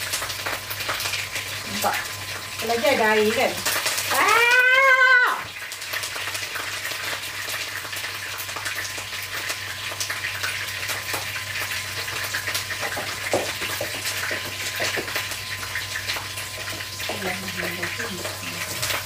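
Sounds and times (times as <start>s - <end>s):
food sizzling in hot oil: 0.0s - 19.0s.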